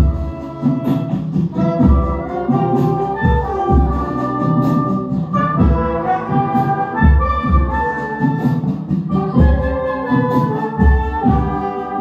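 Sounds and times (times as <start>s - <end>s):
bass drum thumps: 0.0s - 0.4s, 1.3s - 2.5s, 3.2s - 7.9s, 8.6s - 9.9s, 10.8s - 11.6s
brass band playing: 0.0s - 12.0s.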